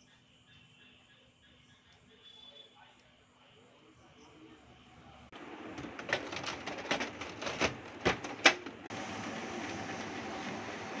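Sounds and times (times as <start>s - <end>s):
printer running with faint hum: 5.3s - 11.0s.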